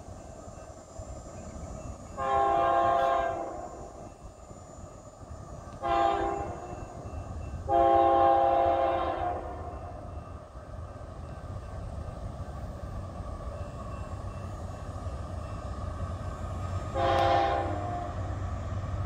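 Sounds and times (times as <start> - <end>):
train air horn blasts: 2.2 - 3.9, 5.8 - 6.7, 7.7 - 10.0, 16.9 - 18.4.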